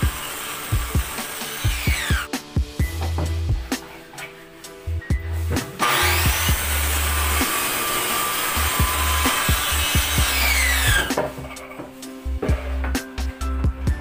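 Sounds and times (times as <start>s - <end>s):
circular saw cutting plywood: 0.0s - 2.3s, 5.7s - 11.4s
background music: 0.0s - 14.0s.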